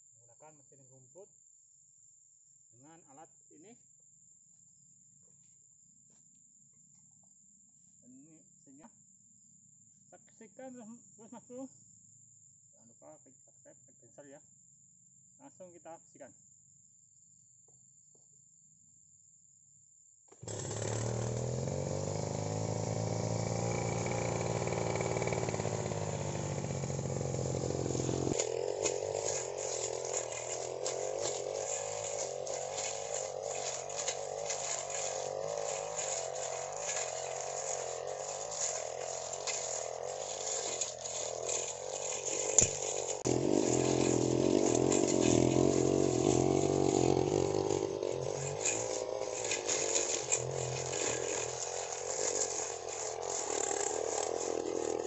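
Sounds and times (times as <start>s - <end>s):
blade ticking and clattering: 20.4s - 55.0s
brush cutter engine running: 20.4s - 55.0s.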